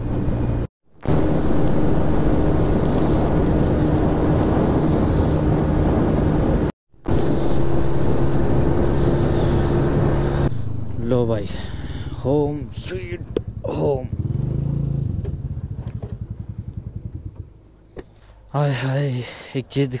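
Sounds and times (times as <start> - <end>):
wind on microphone: 0.0 - 10.5
scooter engine running: 7.1 - 18.2.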